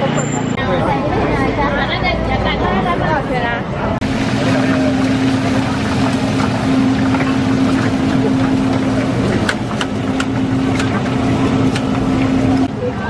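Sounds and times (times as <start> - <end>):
deep-frying oil hissing: 4.0 - 12.7
low machine hum: 4.0 - 13.0.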